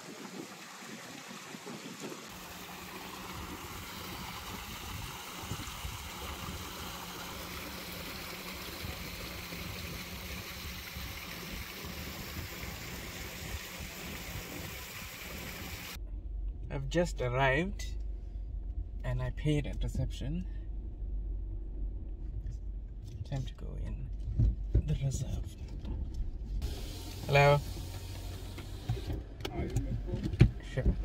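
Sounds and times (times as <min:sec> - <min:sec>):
waterfall splashing into pond: 0:00.0 - 0:16.0, 0:26.6 - 0:29.0
low rumble: 0:09.8 - 0:28.2.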